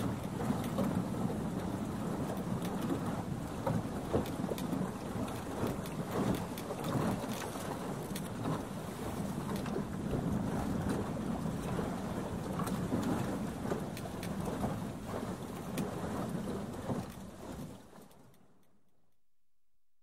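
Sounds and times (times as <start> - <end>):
boat gear clicks and knocks: 0.0 - 8.8, 9.4 - 9.9
water wash around boat: 0.0 - 18.8
wind: 0.0 - 18.9.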